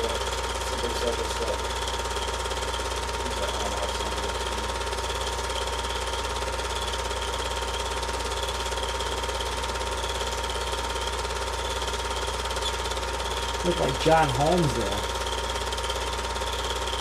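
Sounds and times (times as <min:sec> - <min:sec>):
film projector clatter: 0:00.0 - 0:17.0
projector motor hum: 0:00.0 - 0:17.0
steady whine: 0:13.6 - 0:15.2.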